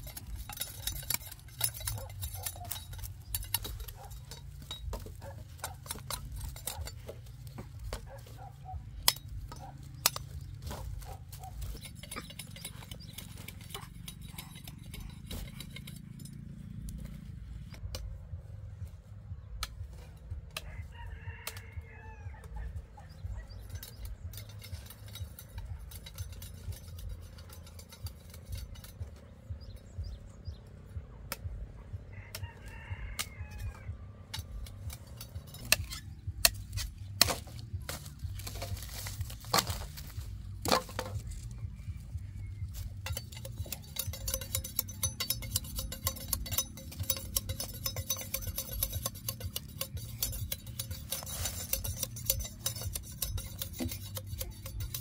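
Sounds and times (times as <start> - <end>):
sugarcane stalks cracking: 0.0 - 13.9, 33.2 - 41.9
rooster crowing: 20.6 - 22.7, 32.1 - 34.0.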